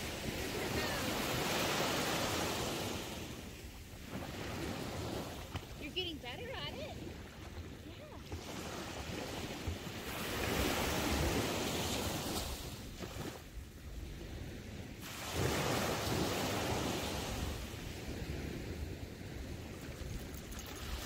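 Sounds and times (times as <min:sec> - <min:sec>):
waves breaking on beach: 0:00.0 - 0:21.0
wind rumbling on microphone: 0:00.0 - 0:21.0.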